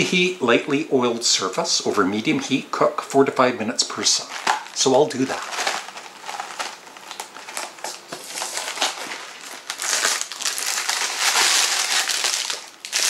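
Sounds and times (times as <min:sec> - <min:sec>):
packaging crinkling and crushing: 0:04.2 - 0:13.0.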